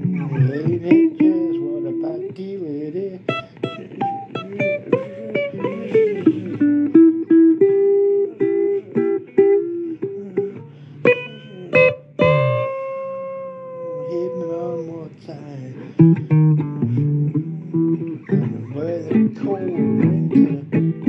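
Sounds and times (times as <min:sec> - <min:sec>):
blues electric guitar solo: 0:00.0 - 0:21.0.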